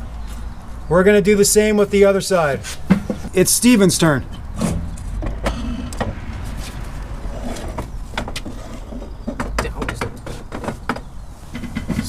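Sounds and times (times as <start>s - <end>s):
steady low rumble: 4.2s - 9.2s.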